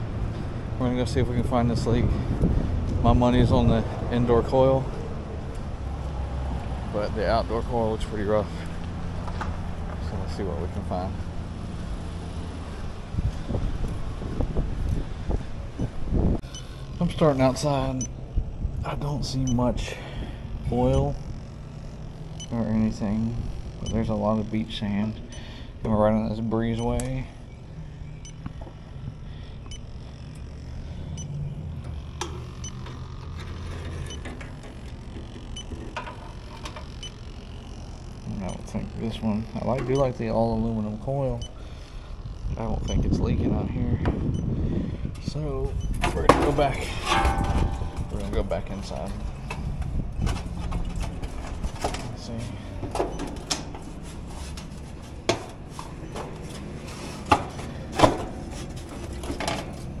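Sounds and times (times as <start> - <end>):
low steady rumble: 0.0 - 52.8
sharp metal knocks: 46.3 - 48.2.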